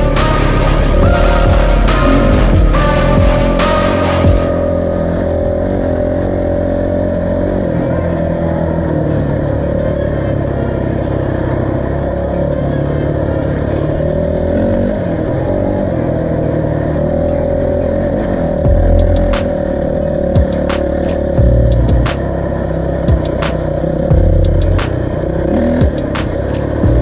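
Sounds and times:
motorcycle engine running: 0:00.0 - 0:27.0.

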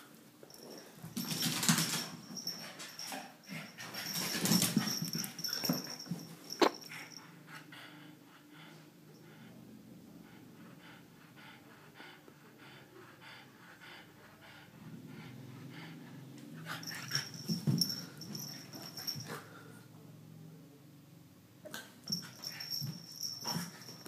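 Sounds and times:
dog and cat tussling: 0:00.5 - 0:07.7, 0:14.5 - 0:19.6, 0:21.6 - 0:24.0
dog panting and snorting: 0:10.2 - 0:19.6.

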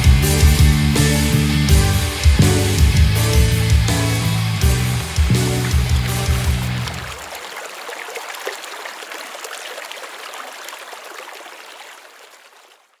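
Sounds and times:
babbling water: 0:06.8 - 0:13.0.

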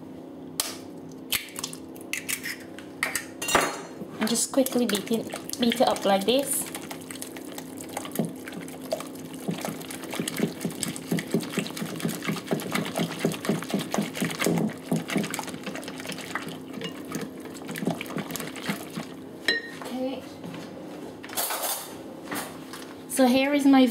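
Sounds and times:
whisk beating batter in a bowl: 0:04.6 - 0:19.2.

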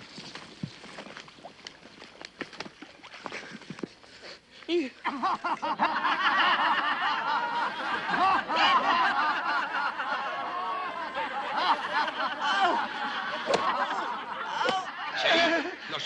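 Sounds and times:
men laughing: 0:05.0 - 0:16.0.

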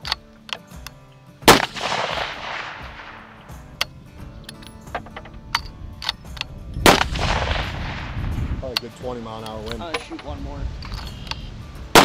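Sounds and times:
rifle bolt clicks: 0:00.0 - 0:08.0, 0:08.7 - 0:12.0
rifle shot: 0:01.4 - 0:04.0, 0:06.0 - 0:08.6.

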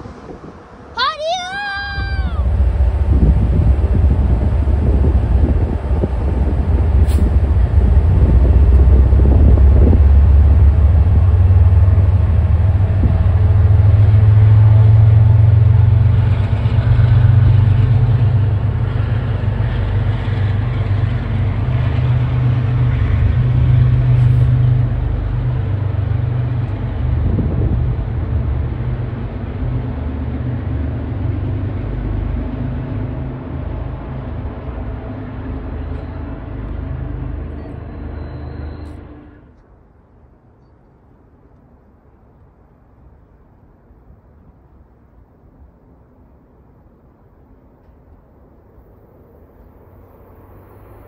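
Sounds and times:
diesel locomotive engine droning: 0:00.0 - 0:51.0.

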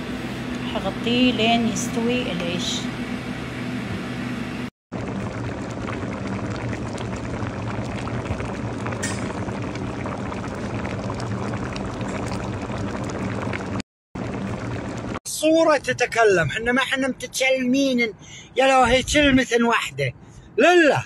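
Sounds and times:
low hum: 0:00.0 - 0:15.2
pot boiling hard: 0:04.9 - 0:15.3.

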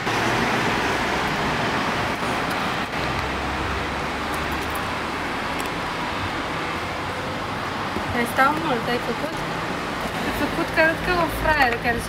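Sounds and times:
street traffic noise: 0:00.0 - 0:12.0
vehicle low rumble: 0:00.0 - 0:12.0.

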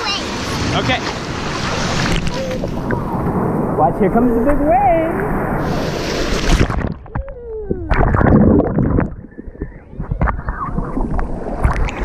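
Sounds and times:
wave splashing water: 0:00.0 - 0:12.0
muffled underwater gurgling: 0:06.6 - 0:11.9.

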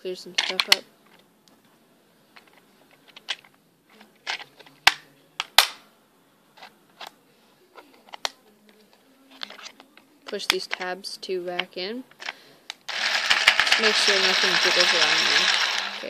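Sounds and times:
plastic parts clicking: 0:00.4 - 0:00.8.

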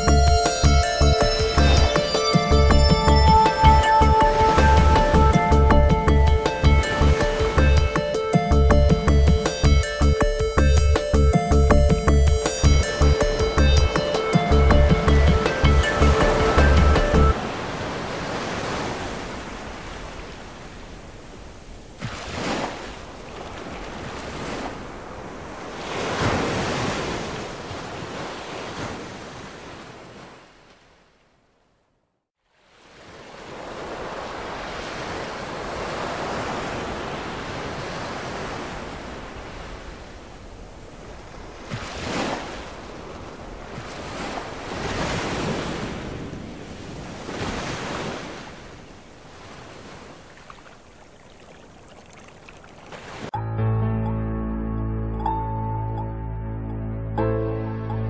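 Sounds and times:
ocean surf washing in: 0:06.3 - 0:08.6, 0:12.4 - 0:30.5, 0:32.6 - 0:53.4.

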